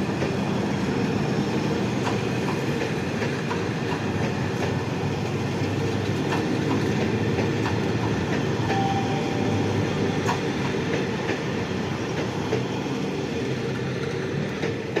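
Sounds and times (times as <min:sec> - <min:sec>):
train wheels rumbling on rails: 0:00.0 - 0:15.0
thin tone: 0:08.7 - 0:10.1.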